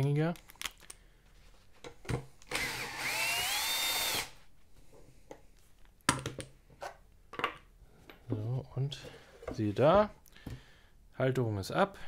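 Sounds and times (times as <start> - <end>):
drill clicks: 2.4 - 4.3
cordless drill motor whine: 2.5 - 4.3.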